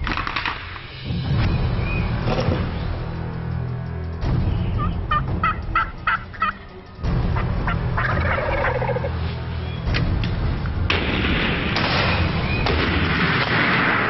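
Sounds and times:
turkeys calling: 0:04.4 - 0:10.0
turkey gobble rattling: 0:04.8 - 0:06.7, 0:07.3 - 0:09.1.

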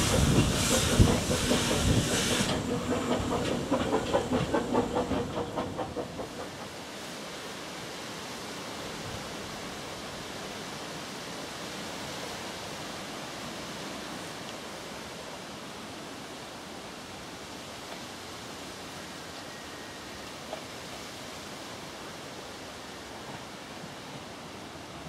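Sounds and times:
outdoor background hiss: 0:06.4 - 0:25.0.

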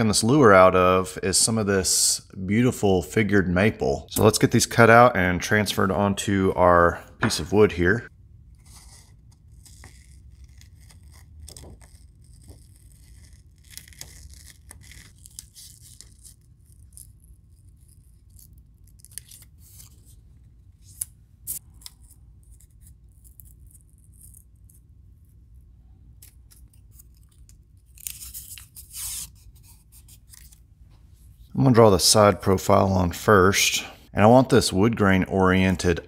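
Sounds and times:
scissors snipping paper: 0:08.6 - 0:20.0, 0:26.2 - 0:30.6
paper rustling: 0:26.2 - 0:30.6.

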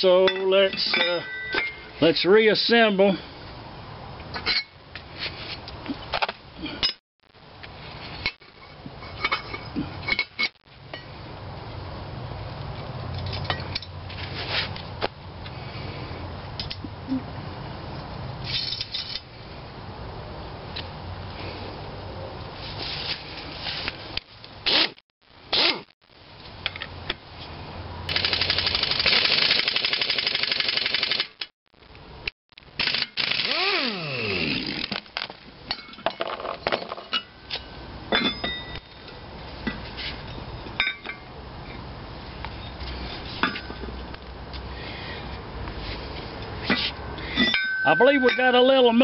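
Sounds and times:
metal clinks: 0:00.2 - 0:02.0, 0:35.7 - 0:41.3, 0:47.3 - 0:48.6
air impact wrench hammering: 0:32.8 - 0:35.0.

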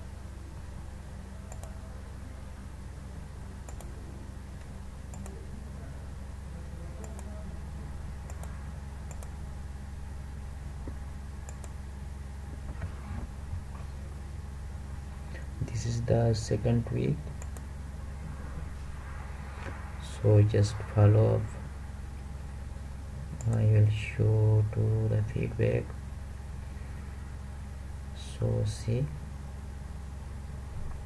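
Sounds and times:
low electrical hum: 0:00.0 - 0:31.0
computer mouse clicks: 0:01.5 - 0:01.8, 0:03.6 - 0:04.0, 0:04.6 - 0:05.4, 0:07.0 - 0:07.4, 0:08.2 - 0:09.4, 0:11.4 - 0:11.8, 0:17.3 - 0:17.7, 0:23.3 - 0:23.6.

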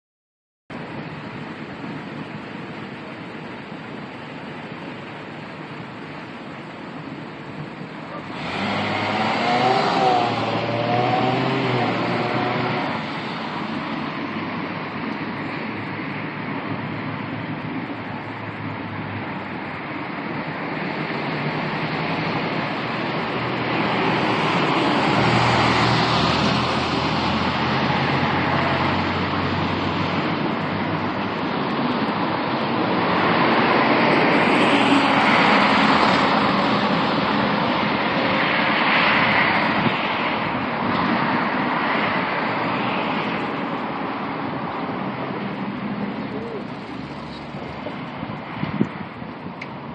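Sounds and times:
vehicles passing on street: 0:00.7 - 0:49.9.

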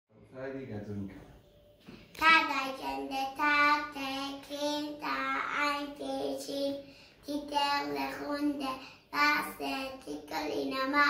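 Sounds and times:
young child singing: 0:02.2 - 0:11.0.

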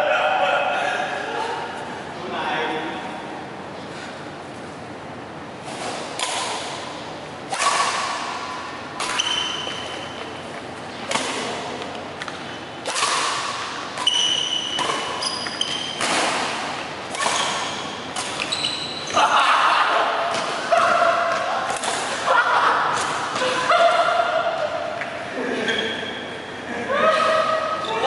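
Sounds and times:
racket hitting shuttlecock: 0:05.6 - 0:19.3, 0:20.0 - 0:25.2
shoes squeaking on court: 0:09.0 - 0:11.2, 0:12.2 - 0:12.8, 0:14.0 - 0:19.2, 0:25.6 - 0:26.3.

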